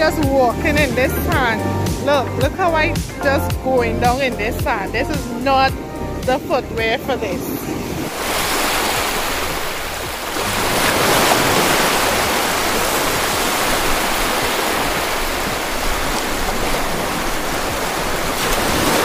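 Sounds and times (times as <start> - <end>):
ocean surf breaking on sand: 6.5 - 19.0.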